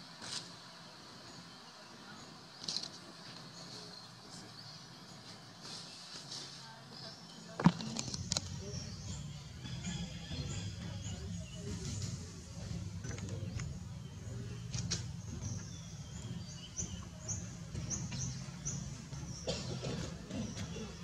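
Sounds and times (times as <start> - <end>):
steady low rumble: 7.7 - 21.0.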